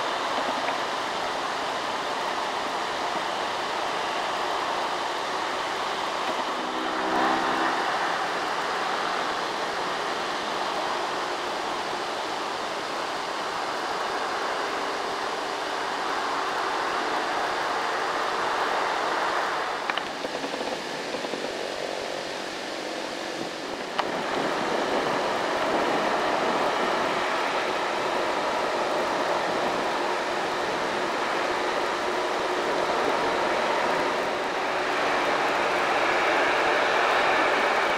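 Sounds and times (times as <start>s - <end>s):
trucks labouring uphill: 0.0s - 37.9s
motorcycles passing: 6.4s - 10.3s.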